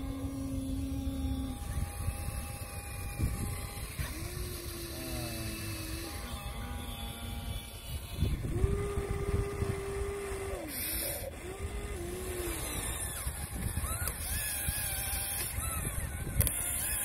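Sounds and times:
electric motors whining: 0.0s - 17.0s.

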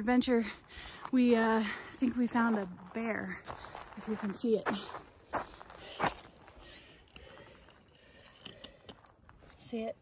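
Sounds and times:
footsteps on gravel: 0.8s - 8.2s.

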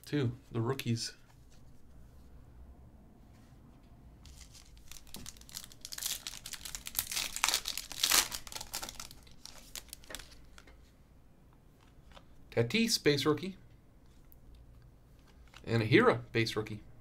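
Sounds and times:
foil wrapper tearing and crinkling: 4.3s - 10.4s.

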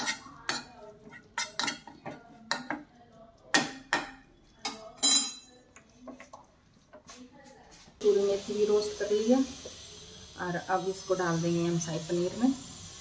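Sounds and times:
metal spoon clinking on pan: 0.0s - 2.9s, 3.5s - 5.7s.

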